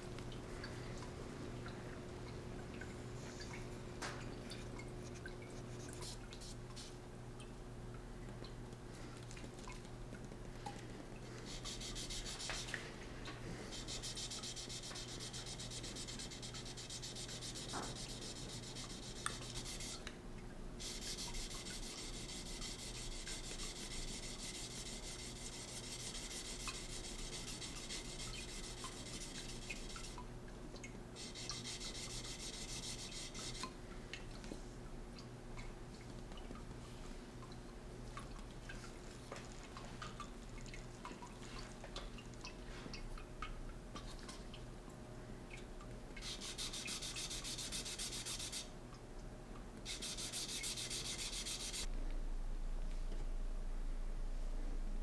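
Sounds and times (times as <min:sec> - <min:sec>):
water trickling: 0:00.1 - 0:34.4, 0:35.0 - 0:47.4
sanding block rubbing steel blade: 0:20.9 - 0:30.2, 0:31.3 - 0:33.6, 0:46.2 - 0:48.6, 0:49.9 - 0:51.9.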